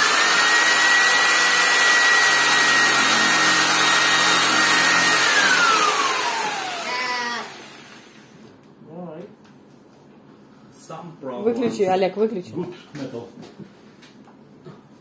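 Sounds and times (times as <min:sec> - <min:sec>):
electric jigsaw cutting steel: 0:00.0 - 0:08.3.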